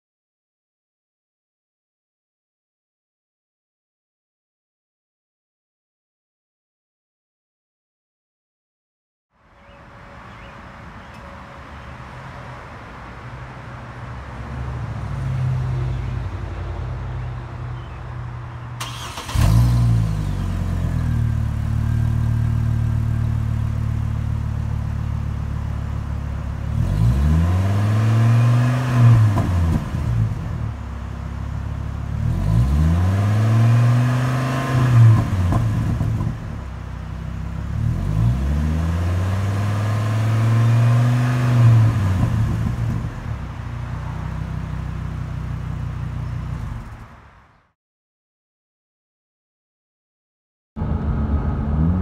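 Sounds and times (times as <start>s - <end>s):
engine exhaust idling and revving: 14.2s - 47.5s, 50.8s - 52.0s.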